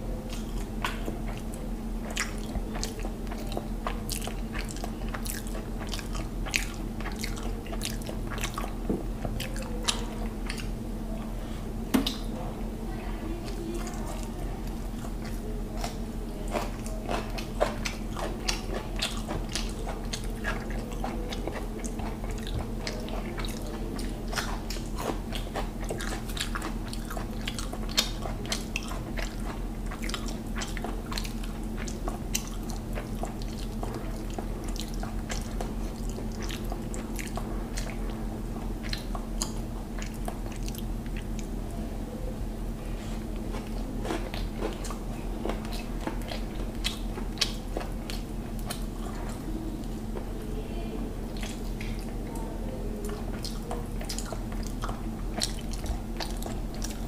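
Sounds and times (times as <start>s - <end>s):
steady low hum: 0.0s - 57.0s
wet chewing mouth clicks: 0.3s - 10.8s, 13.4s - 41.6s, 43.0s - 50.3s, 51.3s - 57.0s.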